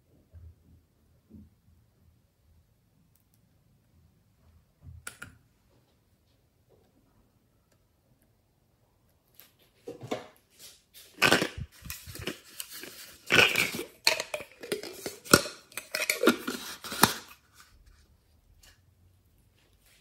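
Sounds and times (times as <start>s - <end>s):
plastic container crackling: 11.0s - 17.4s.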